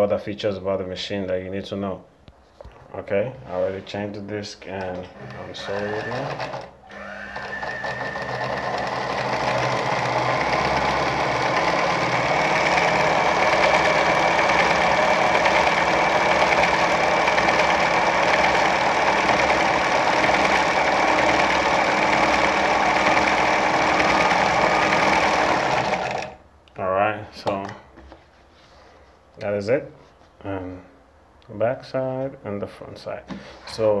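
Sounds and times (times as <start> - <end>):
sewing machine running: 5.0 - 26.4.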